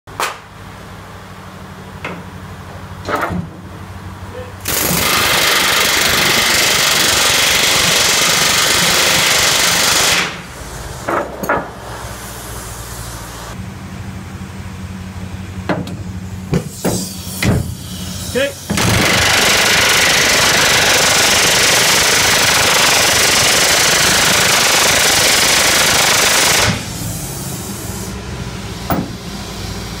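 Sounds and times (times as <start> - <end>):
pneumatic riveting hammer: 4.6 - 11.7, 15.7 - 27.7, 28.8 - 29.2.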